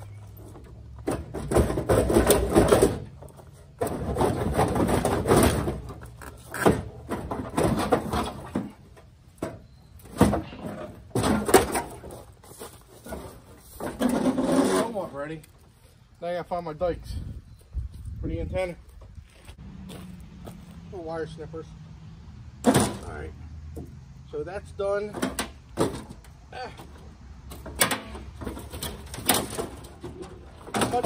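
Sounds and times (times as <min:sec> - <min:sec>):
sheet metal scraping and creaking: 0:13.0 - 0:15.2.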